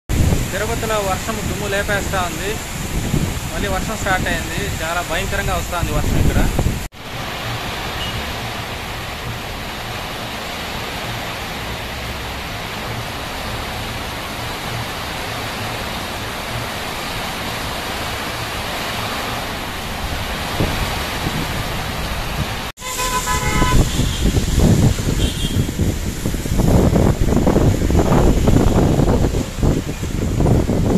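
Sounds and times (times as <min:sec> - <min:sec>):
heavy rain pouring: 0:00.1 - 0:30.9
traffic on a wet road: 0:00.1 - 0:30.9
vehicle horn honking: 0:08.0 - 0:08.2, 0:22.8 - 0:24.4, 0:25.0 - 0:25.8.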